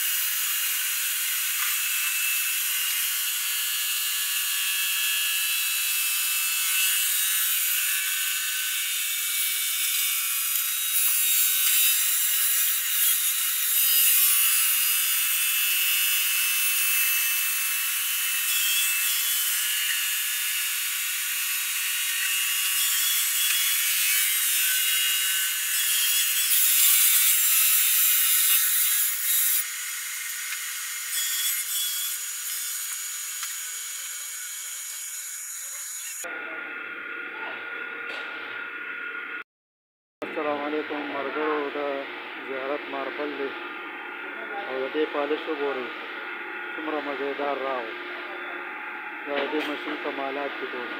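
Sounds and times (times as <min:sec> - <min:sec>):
polishing machine grinding stone: 0:00.0 - 0:36.3.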